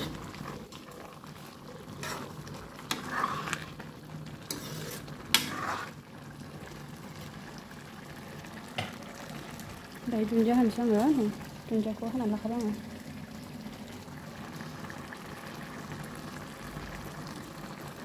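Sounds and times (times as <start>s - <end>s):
ladle stirring thick curry: 0.0s - 6.1s
ladle knocking and scraping pan: 2.0s - 3.7s, 4.5s - 6.0s.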